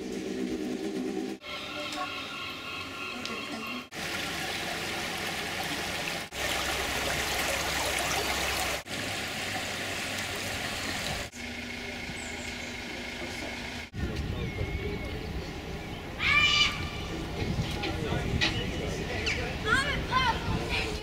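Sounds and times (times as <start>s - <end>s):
stream rushing over stones: 3.9s - 11.3s.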